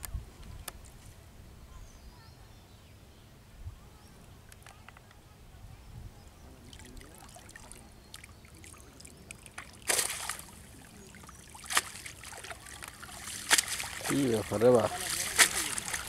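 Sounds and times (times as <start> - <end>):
water trickling and dripping: 6.6 - 16.0
loud water splashes: 9.5 - 16.0.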